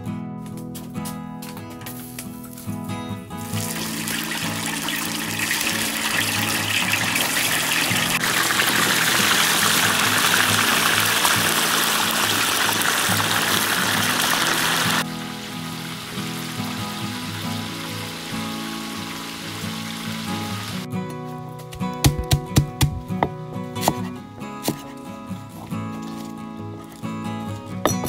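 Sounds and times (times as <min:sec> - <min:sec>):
background music: 0:00.0 - 0:28.0
fish deep-frying in hot oil: 0:03.4 - 0:20.8.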